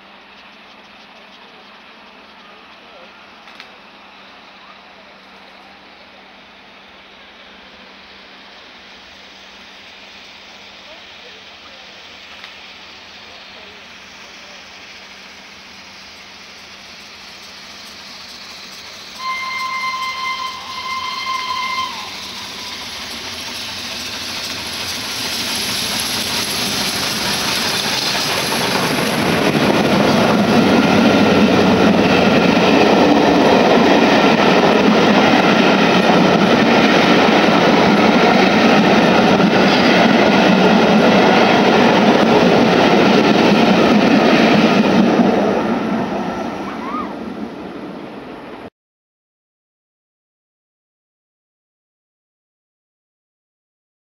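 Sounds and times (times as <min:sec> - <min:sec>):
coaches running on rails: 0:00.0 - 0:48.7
steam train passing at speed: 0:00.0 - 0:48.7
steam locomotive whistle: 0:19.1 - 0:24.0.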